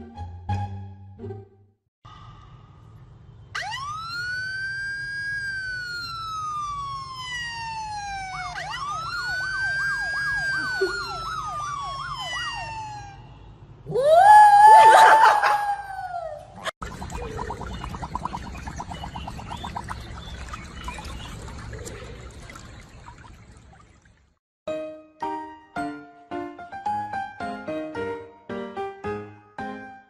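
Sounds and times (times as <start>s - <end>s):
police siren from a phone: 3.6s - 13.5s.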